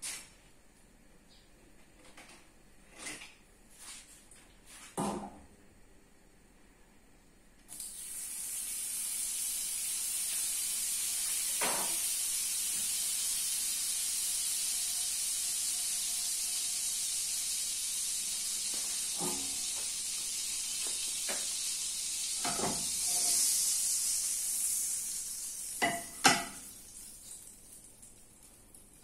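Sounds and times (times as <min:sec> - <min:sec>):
butter sizzling in a frying pan: 0:07.7 - 0:29.0.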